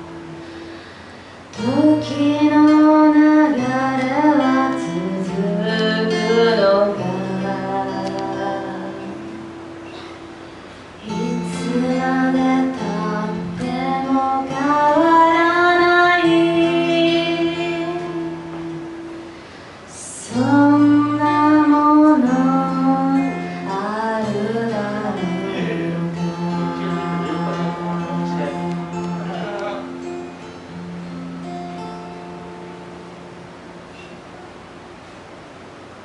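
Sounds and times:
acoustic guitar: 0.0 - 36.0
woman singing: 1.5 - 9.5, 11.0 - 19.3, 19.9 - 29.2.

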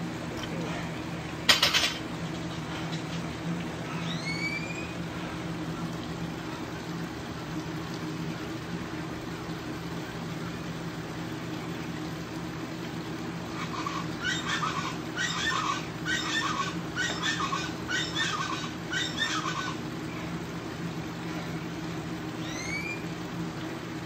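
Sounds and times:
steady hum: 0.0 - 24.0
short high squeak: 4.0 - 4.9, 22.4 - 23.0.

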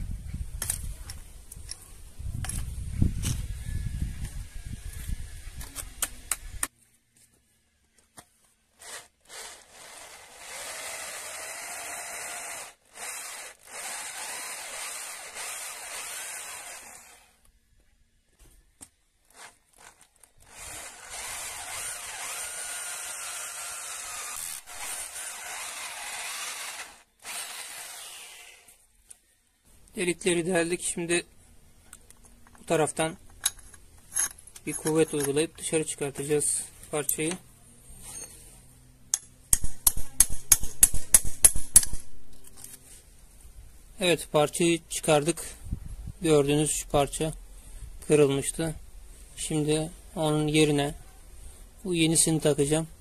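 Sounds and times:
electric drill boring through steel: 8.8 - 17.4, 20.4 - 28.7.

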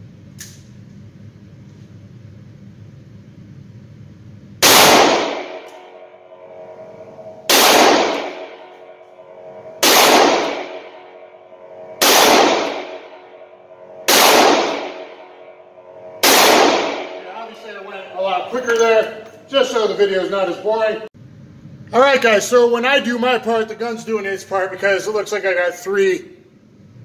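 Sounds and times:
revolver shots echoing indoors: 4.4 - 17.6.

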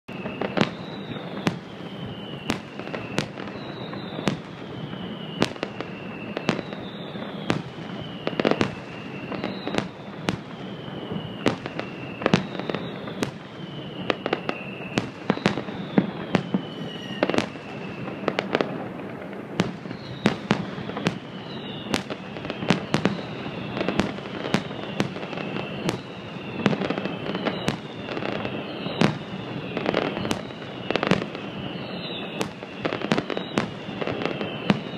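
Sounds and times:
falling firework whistles: 0.1 - 34.9
fireworks bursting with bangs: 0.1 - 34.9.

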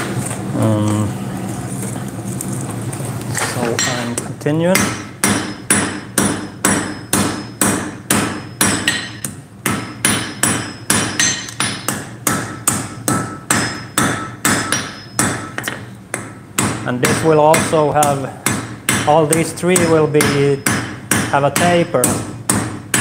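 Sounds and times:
hammer striking iron on anvil: 3.8 - 23.0.

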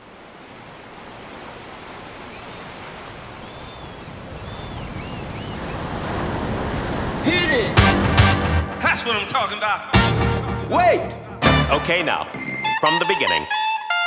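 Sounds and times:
waves on sandy beach: 0.0 - 8.3
high bird chirps: 2.4 - 5.8.

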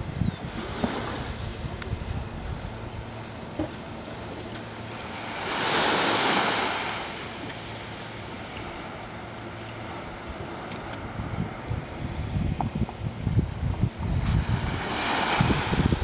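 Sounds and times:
faint lapping of sea: 0.0 - 16.0
wave washing onto sand: 4.9 - 9.2, 13.4 - 16.0.

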